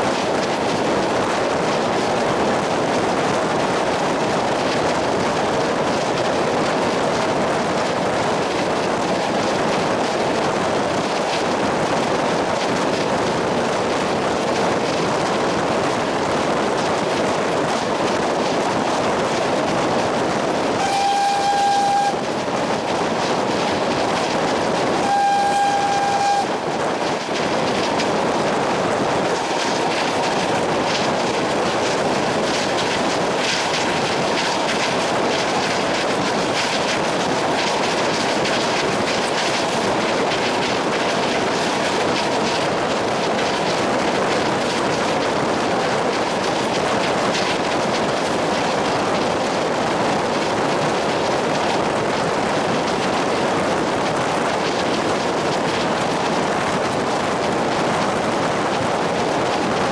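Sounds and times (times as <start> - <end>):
train rumbling on rails: 0.0 - 59.9
train horn blasts: 20.8 - 22.3, 25.0 - 26.6.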